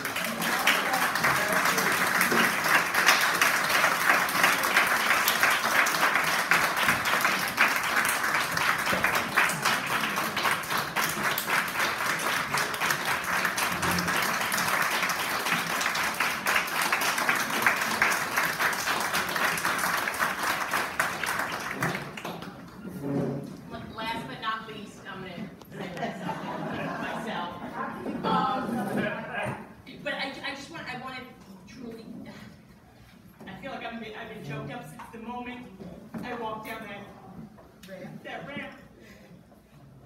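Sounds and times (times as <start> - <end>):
large audience applauding: 0.0 - 22.8.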